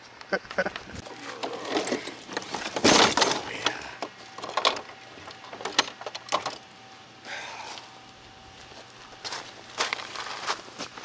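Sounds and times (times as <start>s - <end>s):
toy truck crunching on gravel: 1.0s - 5.7s, 8.5s - 11.0s
knocks and rattles: 1.4s - 6.6s.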